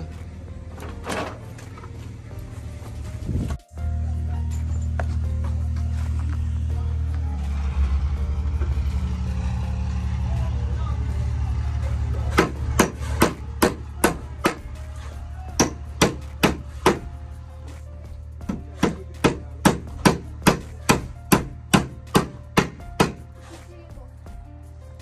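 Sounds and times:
hammer driving nails into wood: 0:12.4 - 0:14.7, 0:15.6 - 0:17.1, 0:18.5 - 0:23.3.

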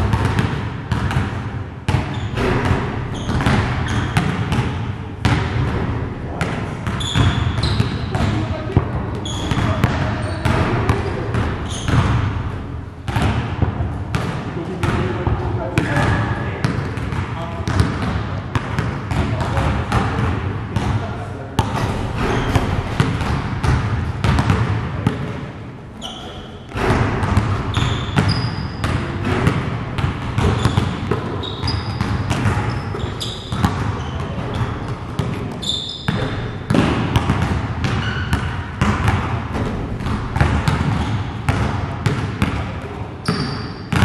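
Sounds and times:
basketballs bouncing on gym floor: 0:00.0 - 0:44.0
shoe squeaks: 0:02.1 - 0:04.2, 0:06.9 - 0:08.2, 0:09.2 - 0:12.0, 0:22.2 - 0:22.8, 0:26.0 - 0:26.7, 0:27.7 - 0:28.8, 0:30.4 - 0:34.7, 0:35.5 - 0:36.4, 0:38.0 - 0:38.3, 0:43.2 - 0:44.0.

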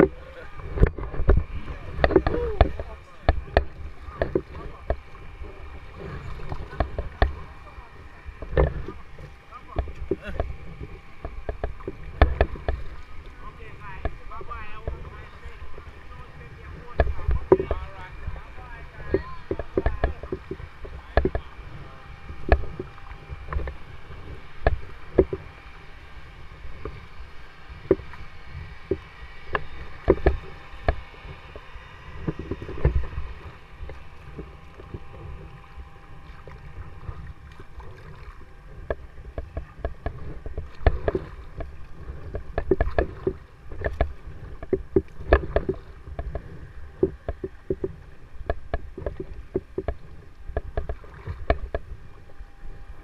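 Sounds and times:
paddle splashing water: 0:00.0 - 0:53.0
steady low rumble: 0:00.0 - 0:53.0
sharp clicks and knocks: 0:00.7 - 0:05.1, 0:08.4 - 0:12.8, 0:19.1 - 0:21.5, 0:22.4 - 0:22.9, 0:38.7 - 0:52.0.

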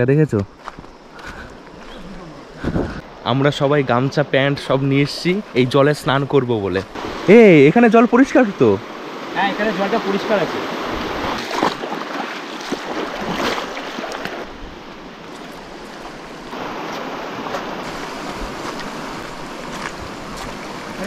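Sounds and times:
footsteps crunching on gravel: 0:00.5 - 0:02.0, 0:16.8 - 0:21.0
river water rushing over stones: 0:06.9 - 0:21.0.

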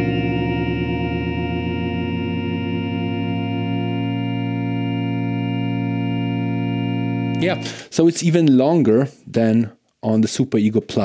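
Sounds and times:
electric guitar drone: 0:00.0 - 0:07.9.

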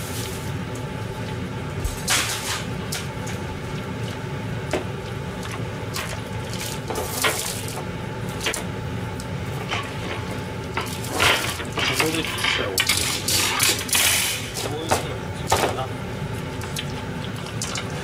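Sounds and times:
kitchen background hum: 0:00.0 - 0:18.0.

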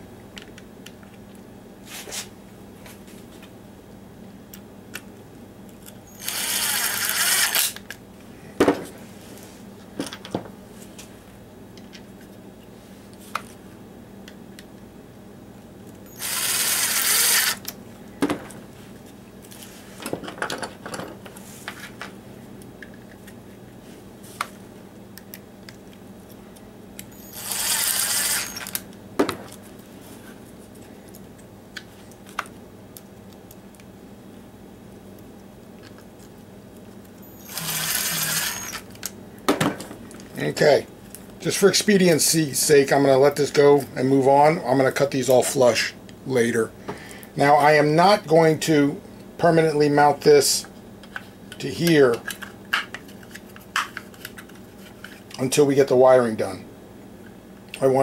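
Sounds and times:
cordless driver driving screws: 0:16.2 - 0:17.6, 0:27.2 - 0:28.8, 0:37.4 - 0:38.8.

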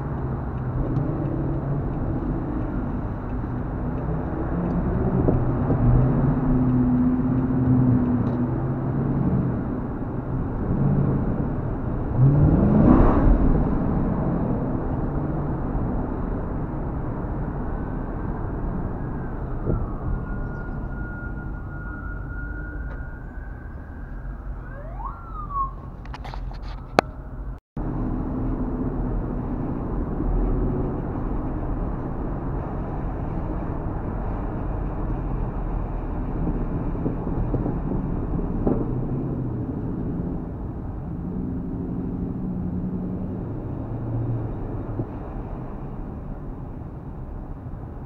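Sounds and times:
car engine and tyres rumbling: 0:00.0 - 0:48.0
rising siren-like whoop: 0:18.4 - 0:27.6
steady whistling tone: 0:19.1 - 0:24.1.

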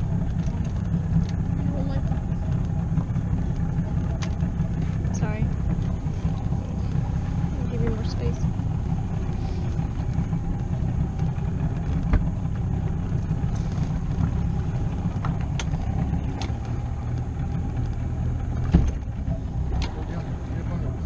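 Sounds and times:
hull moving through water: 0:00.0 - 0:21.0
outboard motor running: 0:00.0 - 0:21.0
loud thump: 0:18.7 - 0:19.0.

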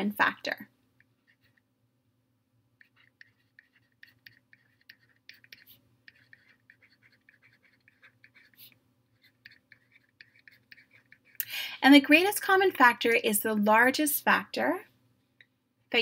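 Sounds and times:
stylus scratching on tablet: 0:00.1 - 0:01.7, 0:02.8 - 0:11.4.

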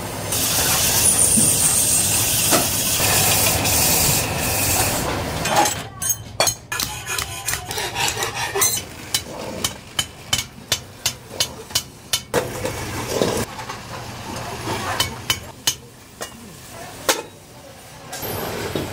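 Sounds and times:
hammer striking metal: 0:05.5 - 0:12.4.

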